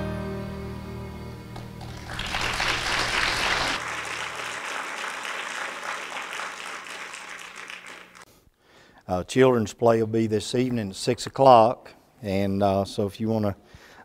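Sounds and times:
congregation applauding: 0:01.6 - 0:08.3.

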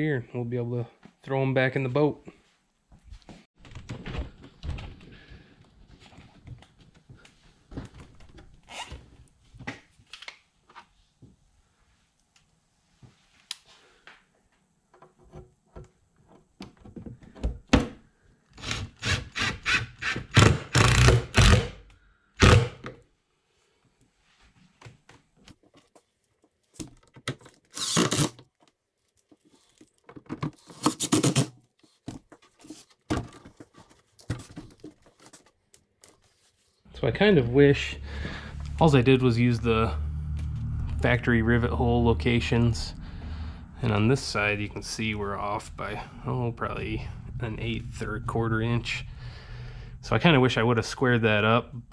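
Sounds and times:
cordless drill driving screws: 0:18.6 - 0:21.7, 0:27.7 - 0:28.4.

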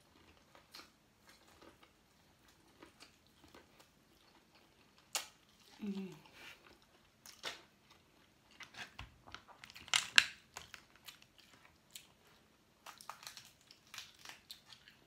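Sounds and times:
chewing: 0:00.0 - 0:15.0
shells cracking and peeling: 0:09.3 - 0:11.3, 0:12.8 - 0:15.0.

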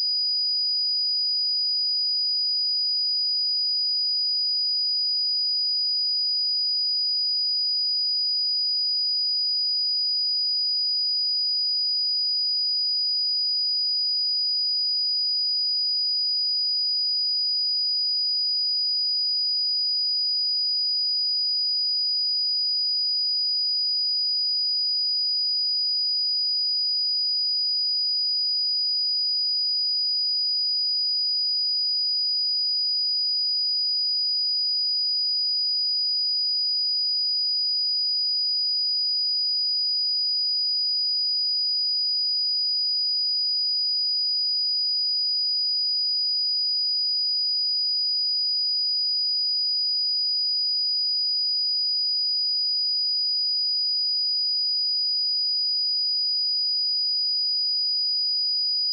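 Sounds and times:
high-pitched sine-wave test tone: 0:58.7 - 0:58.9.

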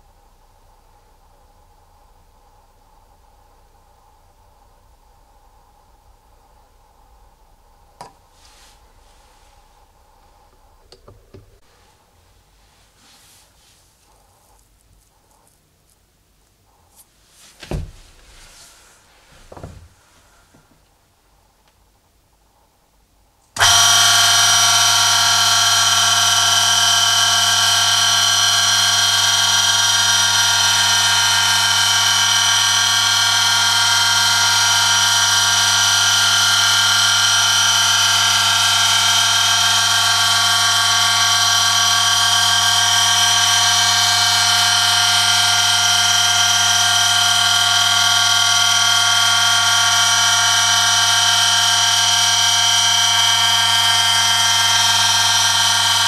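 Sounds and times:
electric motor humming: 0:23.6 - 0:56.0.

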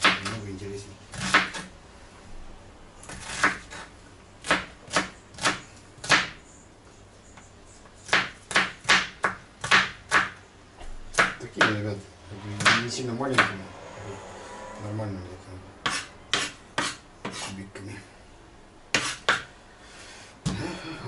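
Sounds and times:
knife chopping onion: 0:00.0 - 0:00.4, 0:01.1 - 0:01.7, 0:03.0 - 0:06.4, 0:08.0 - 0:10.4, 0:11.1 - 0:11.8, 0:12.6 - 0:13.6, 0:15.8 - 0:17.6, 0:18.9 - 0:19.5.

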